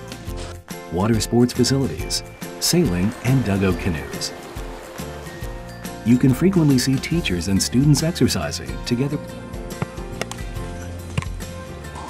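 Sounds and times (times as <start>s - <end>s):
background music held tones: 0.0s - 12.0s.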